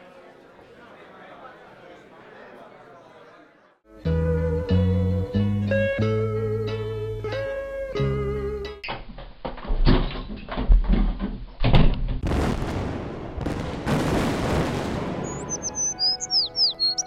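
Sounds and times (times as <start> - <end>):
explosion booms and crackling: 12.2 - 15.8.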